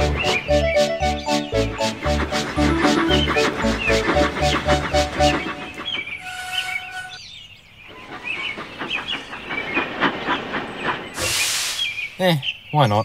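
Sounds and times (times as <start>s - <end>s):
steam engine running on track: 0.0s - 7.2s, 7.9s - 12.3s
steam whistle blowing: 0.0s - 7.2s
loud steam hiss: 8.3s - 12.5s.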